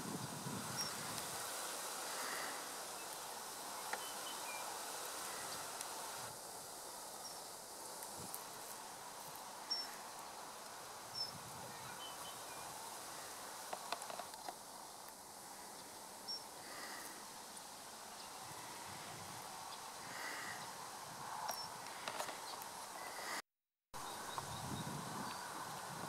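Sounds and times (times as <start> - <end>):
outdoor background hiss: 0.0 - 26.0.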